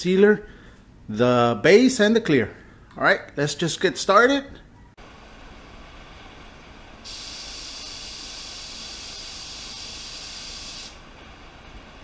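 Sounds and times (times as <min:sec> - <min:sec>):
spray gun hissing: 0:07.1 - 0:11.0.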